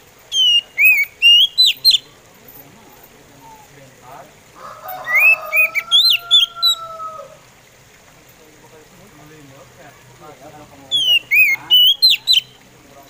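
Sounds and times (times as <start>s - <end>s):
bird singing whistled notes: 0.3s - 2.2s, 4.9s - 7.0s, 10.9s - 12.7s.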